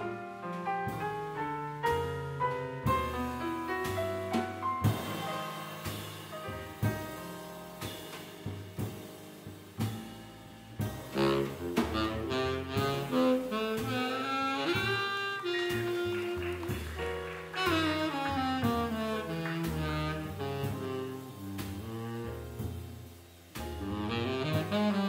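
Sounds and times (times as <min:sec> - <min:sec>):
double bass: 0:00.0 - 0:25.0
drums: 0:00.0 - 0:25.0
piano: 0:00.0 - 0:25.0
tenor saxophone melody: 0:11.2 - 0:22.6, 0:23.8 - 0:25.0.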